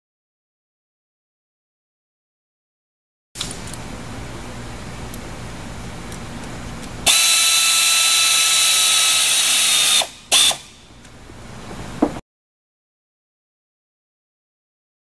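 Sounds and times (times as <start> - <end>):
pneumatic air gun hissing: 7.1 - 10.8.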